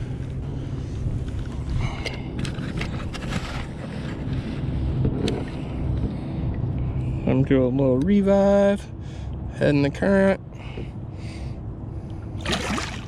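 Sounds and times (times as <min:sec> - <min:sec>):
light water splashes: 0:12.4 - 0:13.0.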